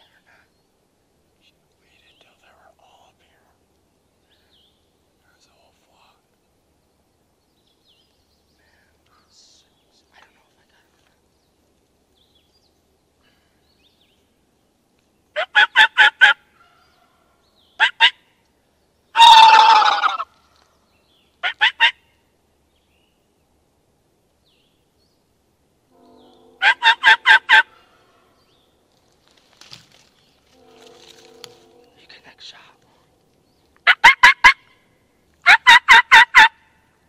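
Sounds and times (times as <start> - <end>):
turkey yelping: 15.4 - 16.8, 17.8 - 18.2, 19.2 - 20.3, 21.4 - 22.0, 26.6 - 27.9, 33.8 - 34.7, 35.4 - 36.6
rough loud turkey call: 19.2 - 20.6, 26.0 - 28.4, 33.8 - 34.8, 35.4 - 36.6.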